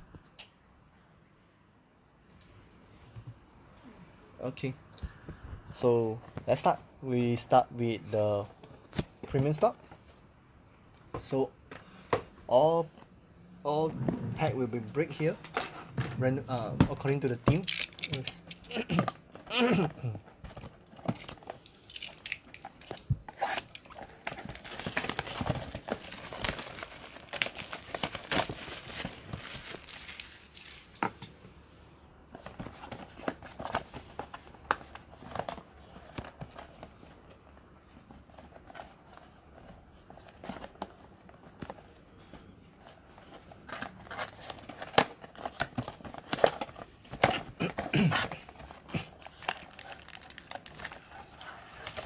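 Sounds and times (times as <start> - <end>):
shrink wrap crinkling and tearing: 17.6 - 19.1, 20.7 - 31.0, 43.7 - 52.0.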